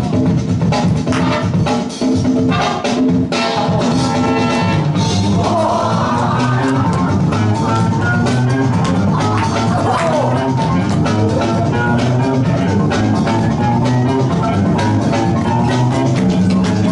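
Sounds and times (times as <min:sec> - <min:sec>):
loud music with drum beat: 0:00.0 - 0:16.9.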